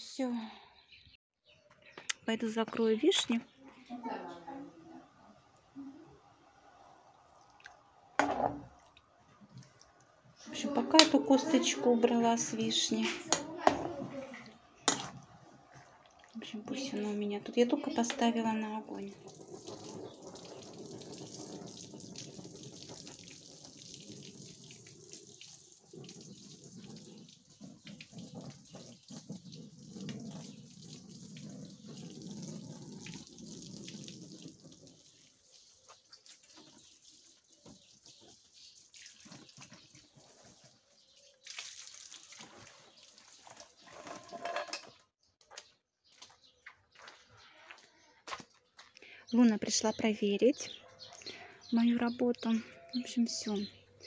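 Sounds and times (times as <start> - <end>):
hose water spraying on carpet: 19.0 - 43.5.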